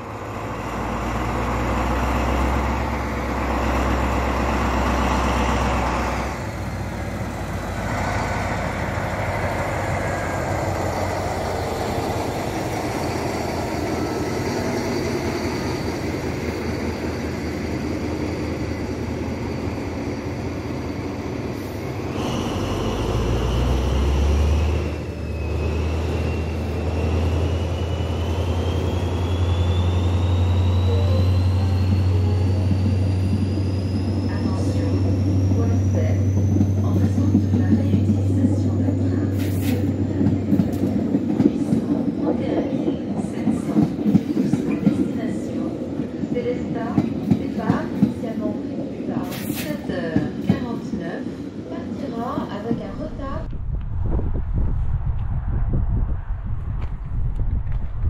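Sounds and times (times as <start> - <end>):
diesel locomotive engine hum: 0.0 - 58.0
rising whine: 22.0 - 36.7.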